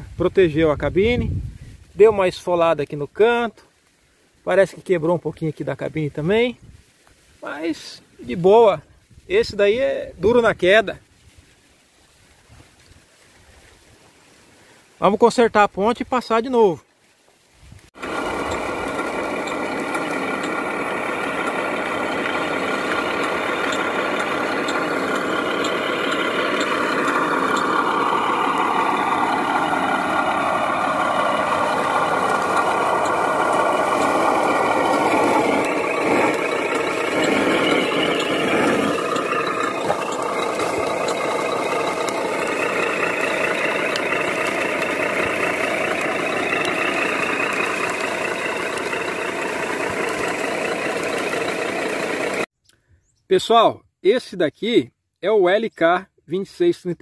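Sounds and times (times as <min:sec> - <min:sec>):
toy truck diesel engine sound: 0:18.0 - 0:52.5.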